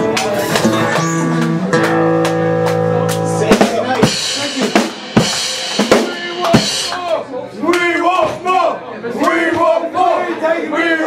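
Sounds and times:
drum and cymbal strikes: 0.1s - 7.2s
rock band held chord: 0.1s - 7.3s.

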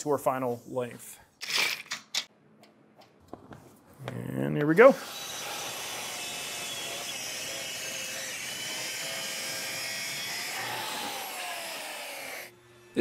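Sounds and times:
track saw cutting wood: 4.9s - 13.0s.

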